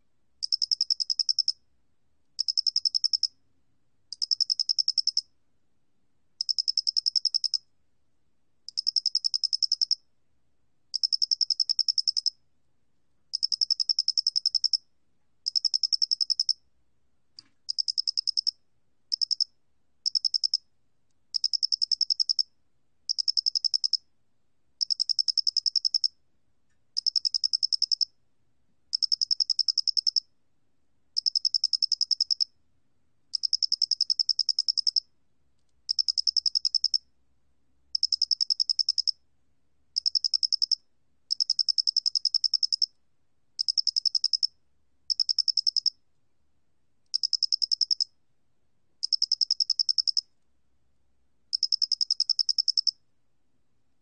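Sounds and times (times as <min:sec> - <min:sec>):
cricket trilling: 0:51.6 - 0:52.9.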